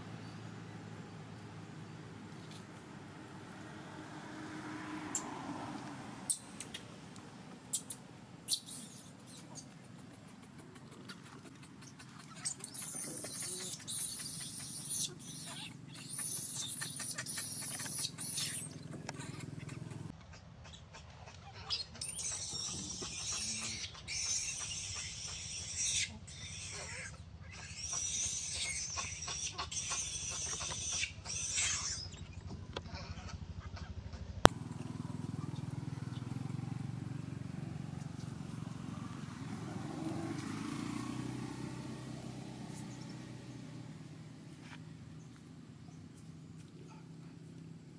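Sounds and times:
baby monkey screaming: 0:07.7 - 0:09.7, 0:11.2 - 0:19.9, 0:21.6 - 0:32.2.

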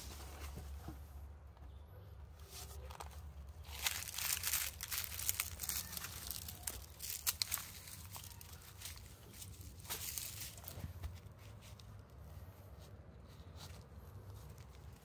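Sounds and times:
dry leaves crunching underfoot: 0:02.5 - 0:12.2.

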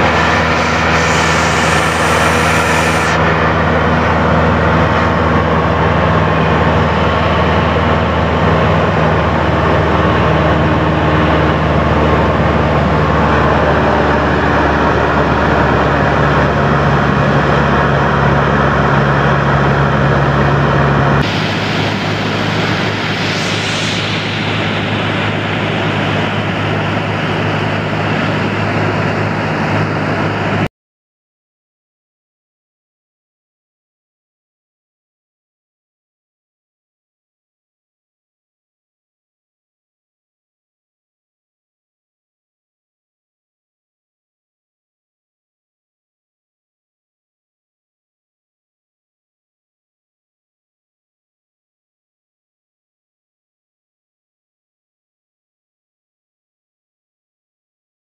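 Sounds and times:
propeller plane droning: 0:00.0 - 0:30.7.

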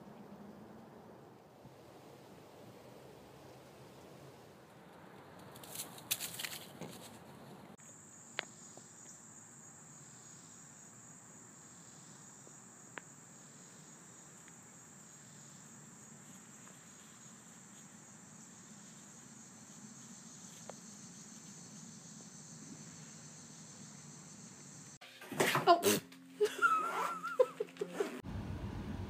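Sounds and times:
rustling in dry grass and leaves: 0:04.2 - 0:07.8, 0:15.7 - 0:21.7
high-pitched insect chorus: 0:07.8 - 0:25.0.

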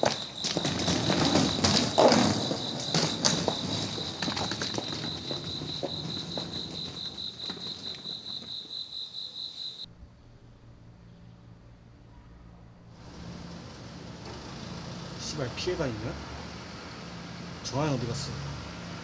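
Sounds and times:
scuffs and knocks: 0:00.0 - 0:08.6
crickets chirping: 0:00.0 - 0:09.9.

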